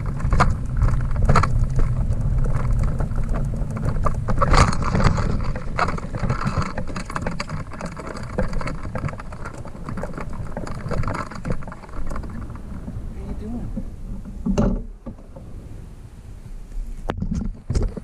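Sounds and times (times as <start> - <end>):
trailer clicking and rattling: 0.0 - 15.4
trailer wheels rolling on pavement: 0.0 - 18.0.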